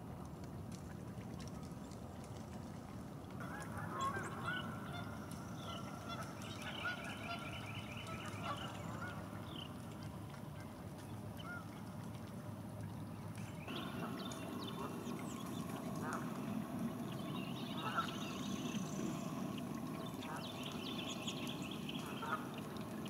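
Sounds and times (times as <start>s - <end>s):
geese honking: 3.4s - 9.3s, 17.6s - 18.7s, 22.0s - 22.6s.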